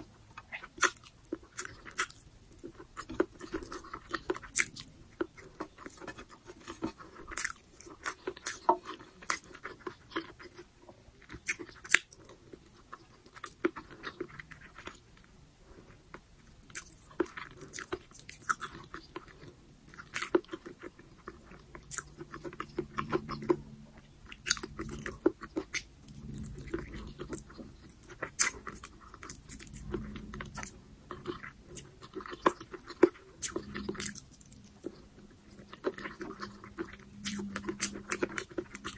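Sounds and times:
close chewing with mouth clicks: 0.0 - 38.9.

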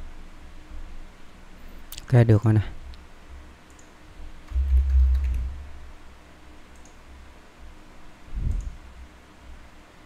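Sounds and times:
keyboard keys clicking: 4.5 - 5.5
dull low thumps: 4.5 - 5.8.

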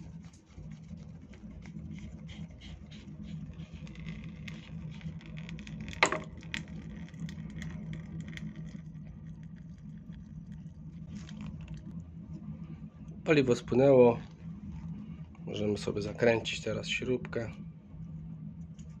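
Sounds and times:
steady low hum: 0.0 - 19.0
fuel dripping and trickling: 0.2 - 12.0.

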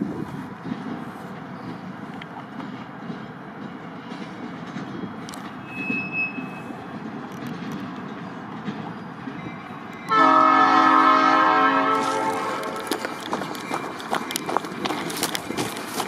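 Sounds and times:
train wheels on rails: 0.0 - 16.0
high-pitched wheel squeal: 5.0 - 6.8
locomotive air horn blast: 10.1 - 12.9.

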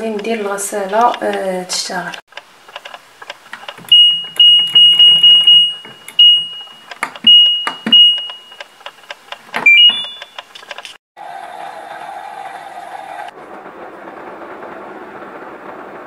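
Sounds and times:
short single-pitch beeps: 7.3 - 8.6, 9.7 - 10.4.

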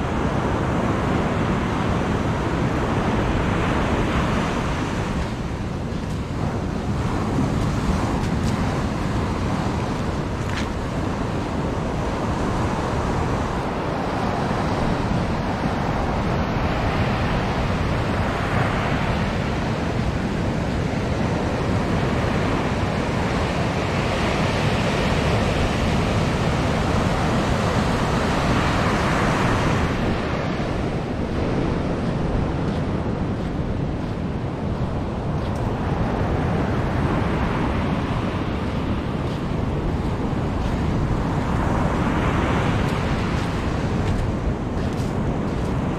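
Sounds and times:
ocean surf breaking: 0.0 - 45.9
wind rumble on microphone: 0.0 - 45.9.

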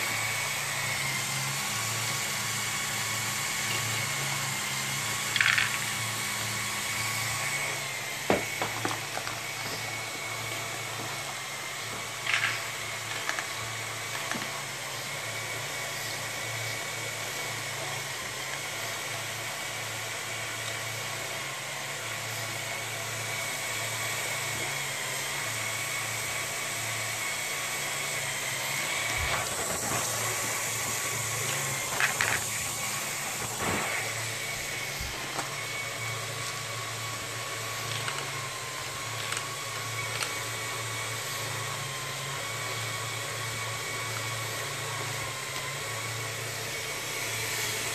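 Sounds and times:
motors whirring with gear whine: 0.0 - 47.9
plastic parts clacking: 12.2 - 13.5.

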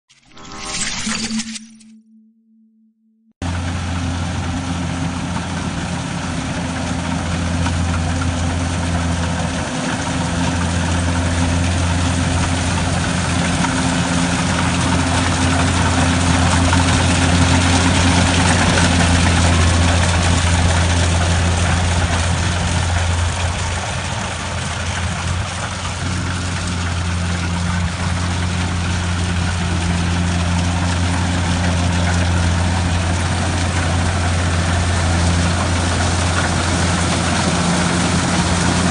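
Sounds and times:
combine harvester engine running: 3.4 - 38.9
mechanical rush of threshing: 3.4 - 38.9.

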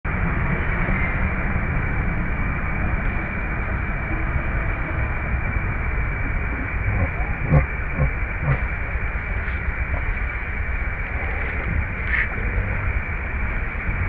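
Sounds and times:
wind buffeting microphone: 0.1 - 14.0.

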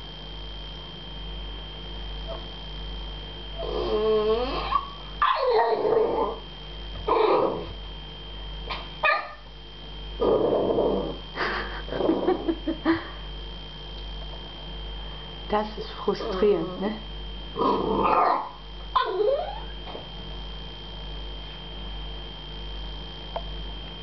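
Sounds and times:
puppy whining: 3.6 - 6.4, 7.1 - 7.7, 16.2 - 16.7, 17.6 - 20.0
puppy barking and yipping: 4.7 - 5.8, 9.0 - 9.4, 18.1 - 19.7.

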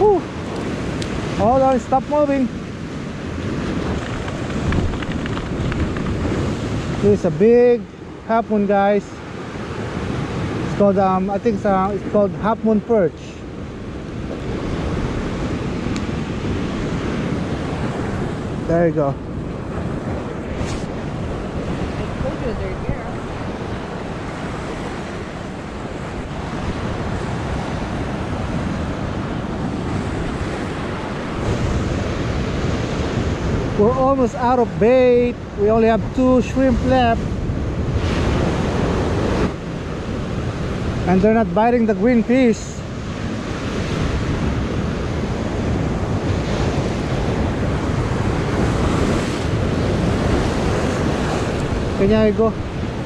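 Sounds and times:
ocean surf breaking on rocks: 0.0 - 53.0
wind buffeting microphone: 0.0 - 53.0.

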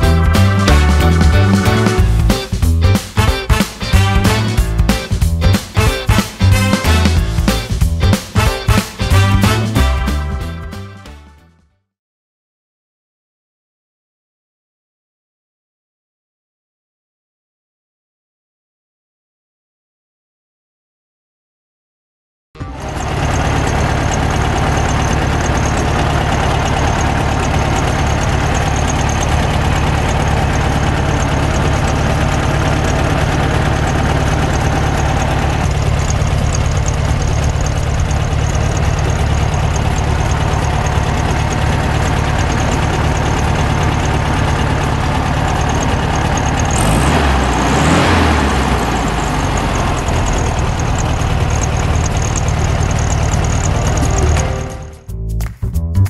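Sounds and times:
car engine idling: 0.0 - 10.8, 22.6 - 55.0.

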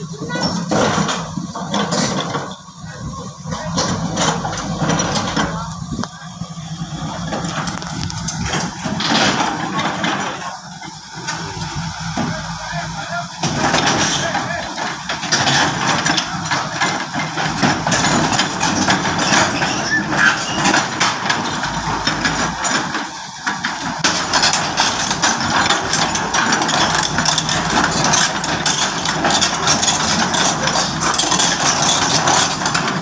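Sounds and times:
excavator diesel engine running: 0.0 - 33.0
metallic knocks and clanks of tracks: 0.0 - 33.0.

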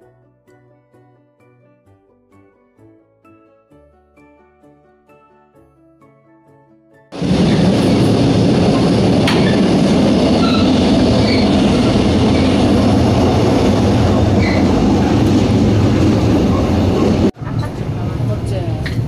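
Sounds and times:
clatter between train coaches: 7.2 - 19.0
train rattle and rumble: 7.2 - 19.0
high wheel squeaks: 9.2 - 17.3.

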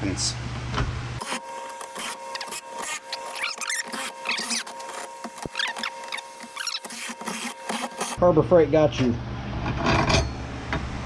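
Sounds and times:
drill bit squealing through steel: 1.2 - 8.2.

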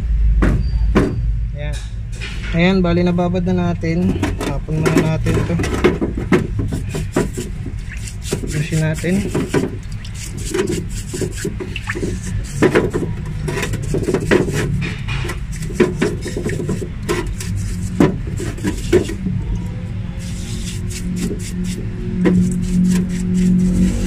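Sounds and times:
steady low hum: 0.0 - 24.0
bristle brush scrubbing metal: 4.1 - 24.0
sharp scrapes: 6.5 - 24.0.

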